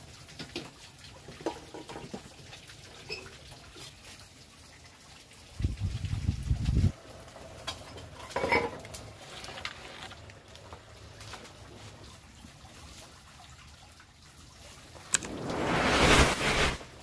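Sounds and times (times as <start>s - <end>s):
low rumble: 15.1s - 17.0s.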